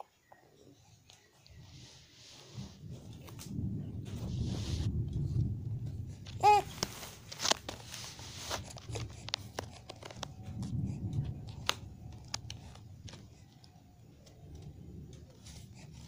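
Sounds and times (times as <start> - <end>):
baby making soft sound: 6.4 - 6.8.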